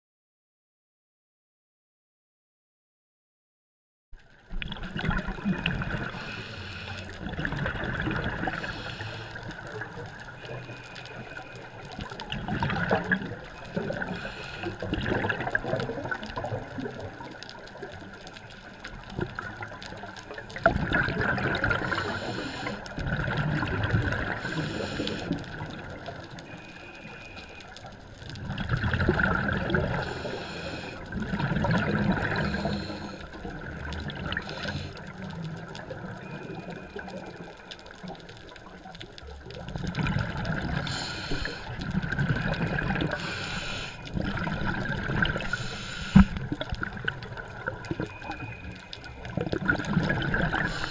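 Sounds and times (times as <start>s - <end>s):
gurgling exhaled bubbles: 4.5s - 18.1s, 19.0s - 26.6s, 28.2s - 50.9s
regulator hisses: 6.2s - 7.1s, 8.6s - 9.4s, 14.2s - 14.8s, 21.8s - 22.8s, 24.4s - 25.3s, 30.0s - 31.0s, 32.4s - 33.3s, 34.4s - 35.0s, 40.8s - 41.7s, 43.2s - 44.0s, 45.5s - 46.4s, 50.7s - 50.9s.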